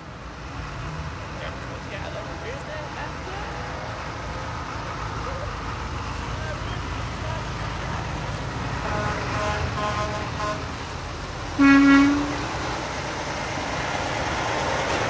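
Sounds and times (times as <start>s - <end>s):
truck engines rumbling: 0.0s - 15.0s
low truck horn blast: 8.6s - 12.8s
short horn toots: 11.6s - 12.5s.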